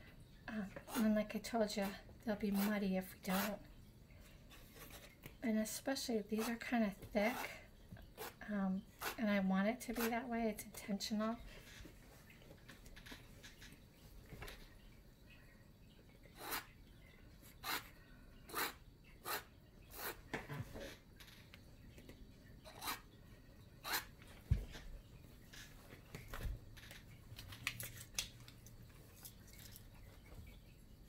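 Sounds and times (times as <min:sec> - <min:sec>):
palette knife scraping paint: 0:07.2 - 0:07.5, 0:09.0 - 0:09.2, 0:16.4 - 0:16.7, 0:17.6 - 0:17.9, 0:18.5 - 0:20.2, 0:22.6 - 0:23.0.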